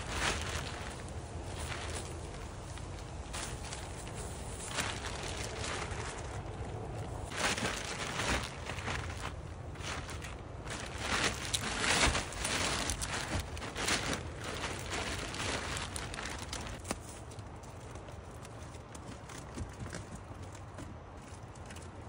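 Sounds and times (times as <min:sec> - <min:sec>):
plastic tarp rustling and crinkling: 0:00.0 - 0:20.4.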